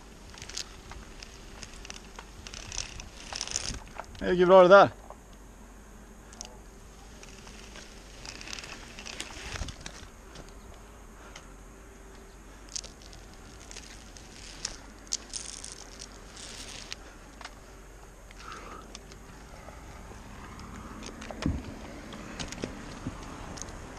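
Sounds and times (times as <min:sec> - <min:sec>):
harness and rope gear clicks: 0:00.0 - 0:04.3, 0:06.3 - 0:11.5, 0:12.1 - 0:17.6, 0:18.2 - 0:23.9
climbing spurs scraping tree bark: 0:00.0 - 0:05.4, 0:06.2 - 0:23.9.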